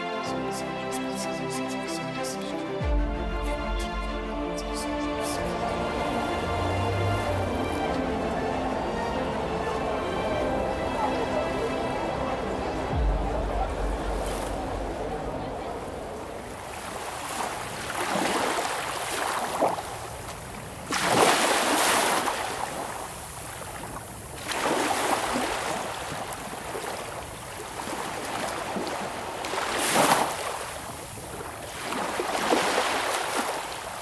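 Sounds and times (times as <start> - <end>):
waves breaking: 0.0 - 34.0.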